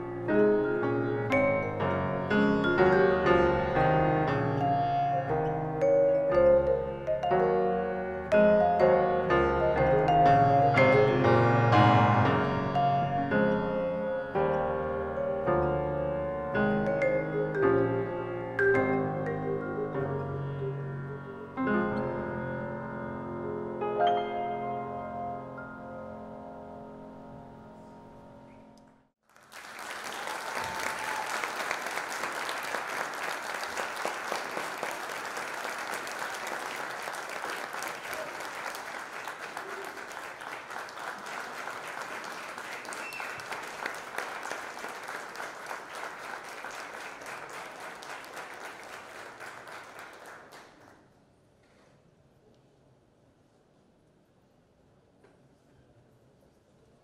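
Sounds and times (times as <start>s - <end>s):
piano and vibraphone chord: 0.0s - 28.7s
audience applauding: 29.2s - 51.0s.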